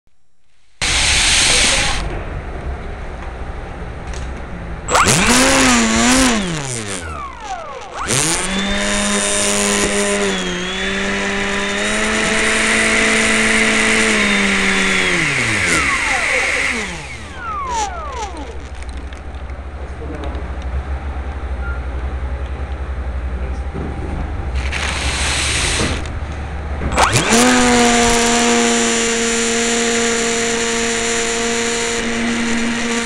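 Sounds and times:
rushing air: 0.8s - 2.1s
electric ducted fan whining: 0.8s - 33.0s.

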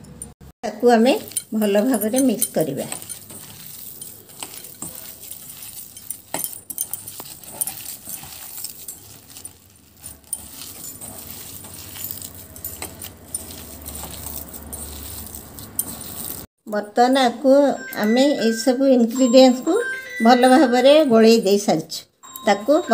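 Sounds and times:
hand squishing vegetable mash: 0.8s - 16.5s
clinks against metal bowl: 1.1s - 16.2s.

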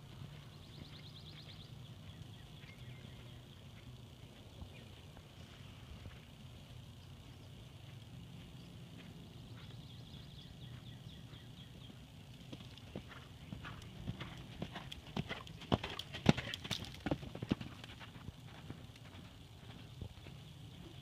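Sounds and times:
horse hoofbeats on sand: 7.7s - 21.0s.

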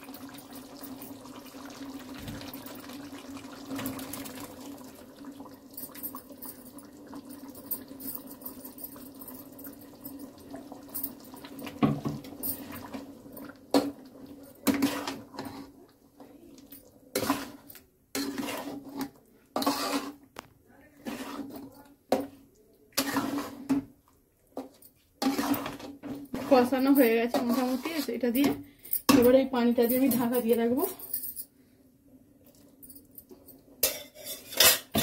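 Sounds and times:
pot bubbling on stove: 0.0s - 20.4s, 21.0s - 24.2s, 25.2s - 28.5s.

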